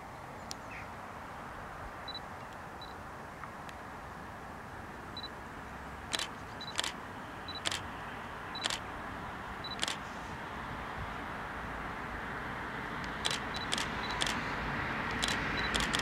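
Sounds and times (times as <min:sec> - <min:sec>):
camera autofocus beep: 0:06.1 - 0:07.8, 0:08.6 - 0:08.8, 0:09.6 - 0:10.0, 0:13.2 - 0:14.4, 0:15.1 - 0:16.0
camera shutter click: 0:06.1 - 0:07.8, 0:08.6 - 0:08.8, 0:09.7 - 0:10.1, 0:13.1 - 0:14.5, 0:15.1 - 0:16.0.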